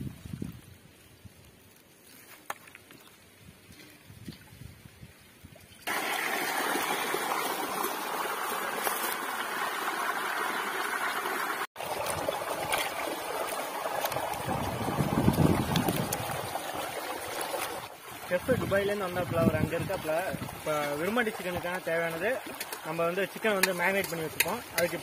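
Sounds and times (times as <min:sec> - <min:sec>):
running water rushing: 0:05.8 - 0:25.0.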